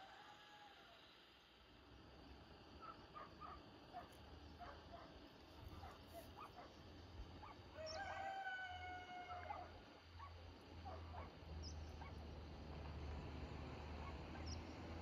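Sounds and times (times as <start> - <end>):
rooster crowing: 0.0 - 1.1, 7.7 - 9.7.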